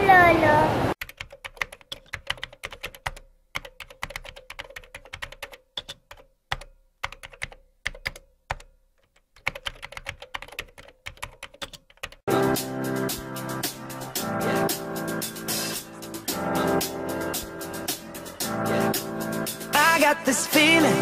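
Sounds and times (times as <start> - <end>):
music: 12.3 - 21.0.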